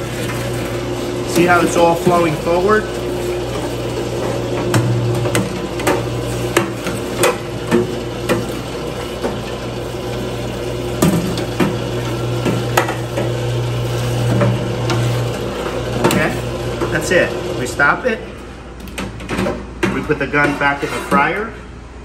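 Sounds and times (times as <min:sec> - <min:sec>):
pump motor humming: 0:00.0 - 0:18.0.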